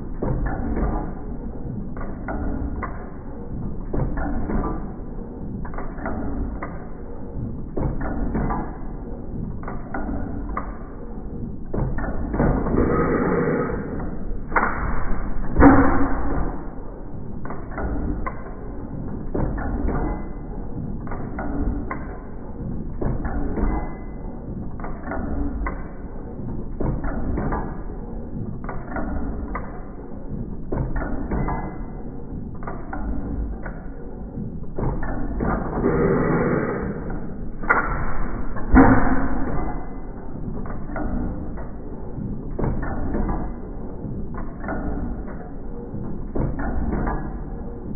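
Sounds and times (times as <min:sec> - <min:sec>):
hit-and-miss engine running: 0:11.8 - 0:19.6, 0:34.8 - 0:43.4
engine firing strokes: 0:12.6 - 0:14.2, 0:35.8 - 0:37.4.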